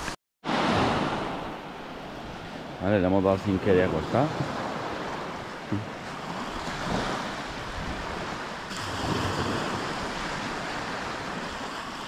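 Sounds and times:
surf washing up beach: 0:00.0 - 0:12.0
wind on microphone: 0:04.1 - 0:12.0.

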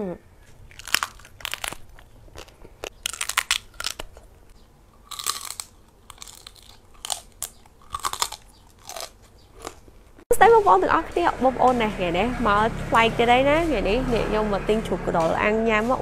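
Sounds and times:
chewing crispy pork skin: 0:00.4 - 0:10.2.

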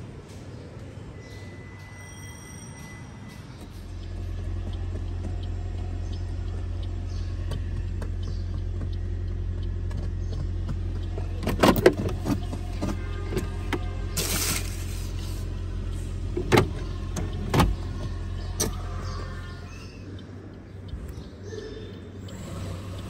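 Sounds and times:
car cabin hum: 0:03.9 - 0:21.3.

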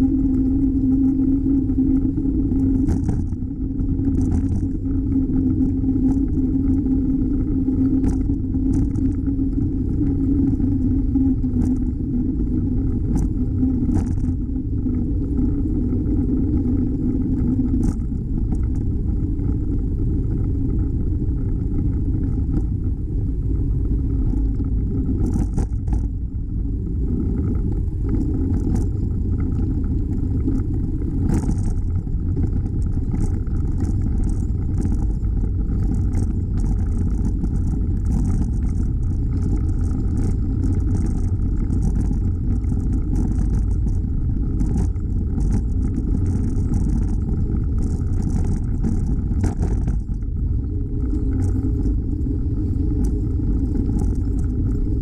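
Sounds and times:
wind and road rumble: 0:00.0 - 0:55.0
light clicks and rattles: 0:24.1 - 0:26.2, 0:27.2 - 0:55.0.

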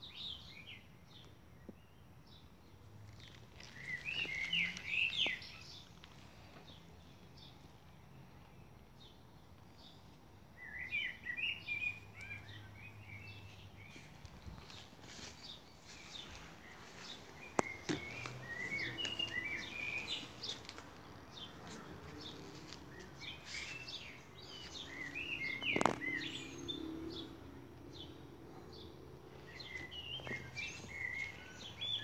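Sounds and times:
birds chirping and singing: 0:03.2 - 0:05.9, 0:10.6 - 0:32.0.

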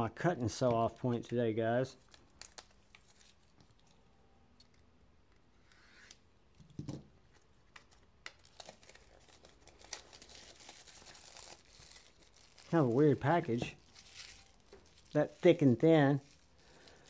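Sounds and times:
cellophane crinkling: 0:00.9 - 0:04.0, 0:07.8 - 0:17.0.

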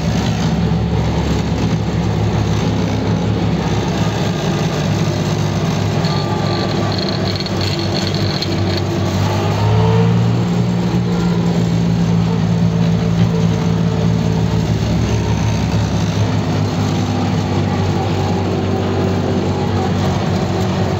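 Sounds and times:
tractor engine running: 0:00.0 - 0:20.9.

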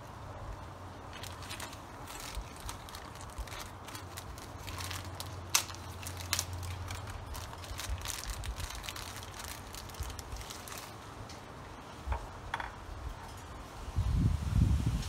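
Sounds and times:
packaging crinkling: 0:01.0 - 0:11.0.

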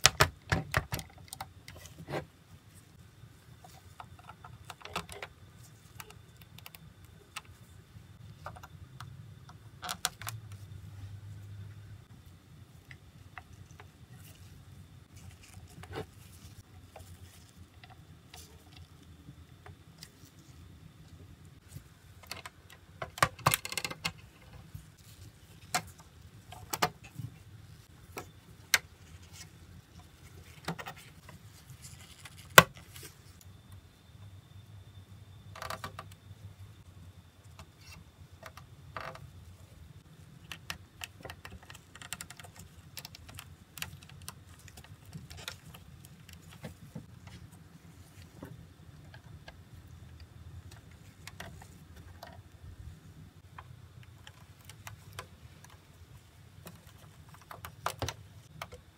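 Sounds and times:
small plastic parts clicking: 0:22.2 - 0:24.4, 0:40.4 - 0:47.4.

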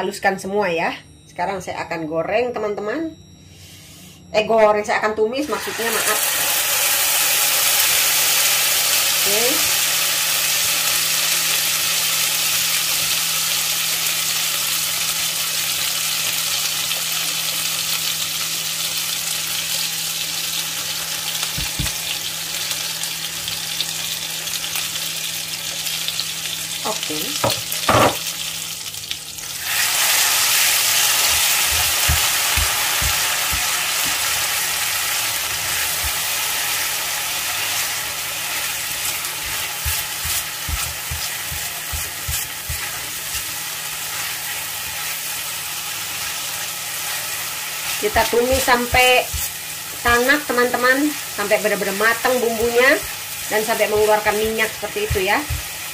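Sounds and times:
spice paste sizzling in oil: 0:05.5 - 0:55.9
spoon stirring and knocking pan: 0:27.4 - 0:28.3, 0:30.9 - 0:34.4, 0:35.4 - 0:36.4, 0:38.9 - 0:43.6, 0:48.0 - 0:50.7, 0:52.2 - 0:55.9.

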